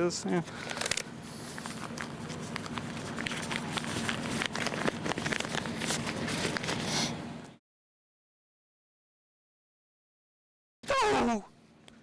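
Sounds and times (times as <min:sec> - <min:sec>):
steady low hum: 0:00.0 - 0:07.6
newspaper pages rustling: 0:00.5 - 0:07.1.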